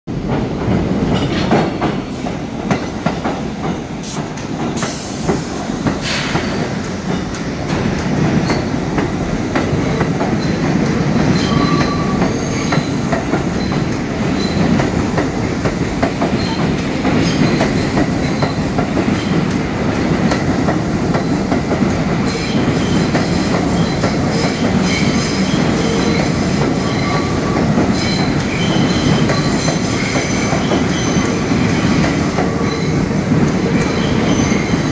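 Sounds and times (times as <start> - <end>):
subway train wheels clacking: 0.1 - 34.9
train wheel squeals: 11.2 - 14.9, 16.2 - 19.4, 22.2 - 34.9.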